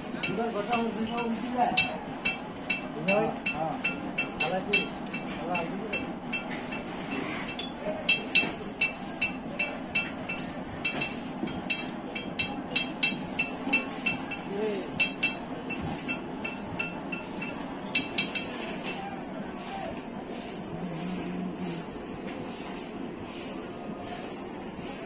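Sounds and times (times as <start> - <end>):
hammer striking metal: 0.2 - 19.1.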